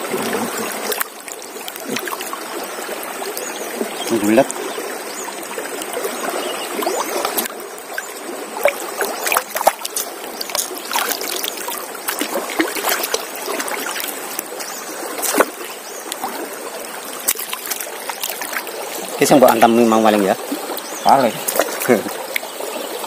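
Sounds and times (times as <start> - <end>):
river current rushing: 0.0 - 23.0
water splashing and dripping: 0.0 - 23.0.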